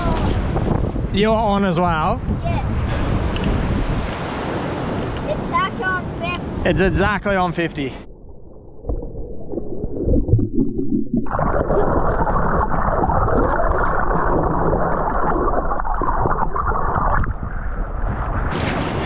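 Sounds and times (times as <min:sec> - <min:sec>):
wind: 0:00.0 - 0:09.2, 0:17.0 - 0:19.0
small waves: 0:00.0 - 0:10.5, 0:11.2 - 0:19.0
muffled underwater water rush: 0:06.2 - 0:19.0.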